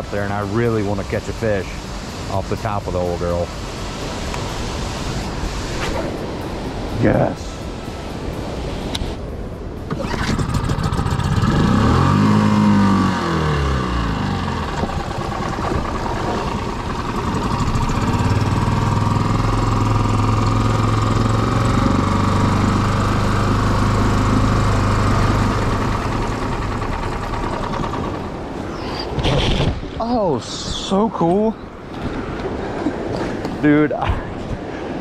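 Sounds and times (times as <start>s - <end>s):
outboard motor running: 9.8s - 29.2s.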